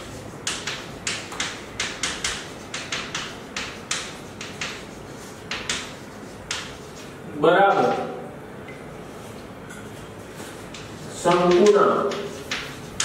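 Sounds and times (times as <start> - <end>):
chalk scratching on a chalkboard: 0.0 - 7.2, 10.2 - 13.0.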